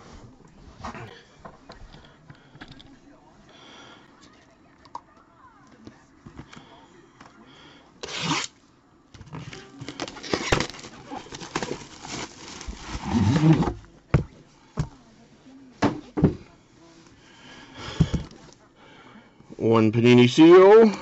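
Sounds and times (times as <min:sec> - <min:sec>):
plastic and cardboard rustling: 0:09.2 - 0:17.1.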